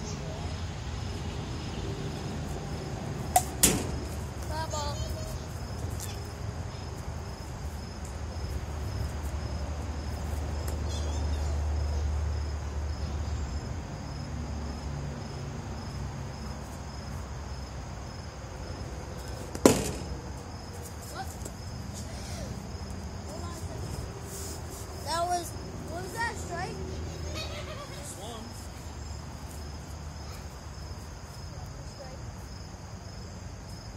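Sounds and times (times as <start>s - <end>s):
insect chirping: 0.0s - 33.9s
plastic bat striking ball: 3.3s - 4.1s, 19.5s - 20.3s.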